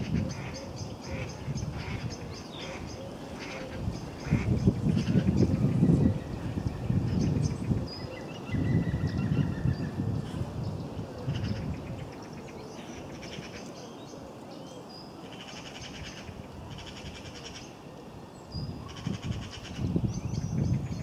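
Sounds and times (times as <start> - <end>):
wind rumble on microphone: 0.0 - 13.8, 18.4 - 21.0
songbirds trilling: 0.0 - 21.0.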